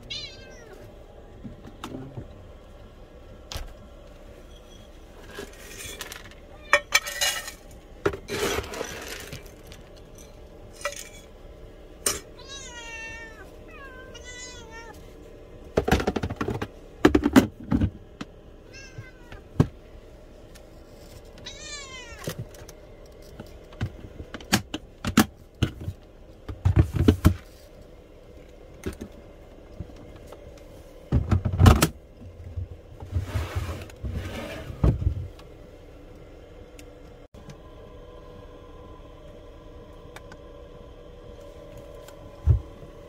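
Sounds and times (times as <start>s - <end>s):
cat meowing: 0.0s - 0.8s, 12.4s - 15.0s, 18.7s - 19.4s, 21.4s - 22.3s.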